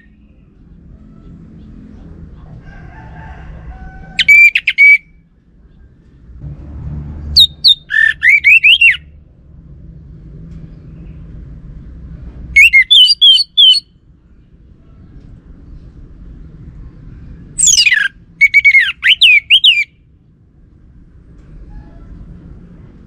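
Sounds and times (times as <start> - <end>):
thrush whistling song: 4.2 - 5.2, 7.3 - 9.2, 12.5 - 14.0, 17.6 - 20.1
faint low rumble: 5.2 - 8.0, 9.0 - 12.6, 13.9 - 18.4, 20.0 - 23.0.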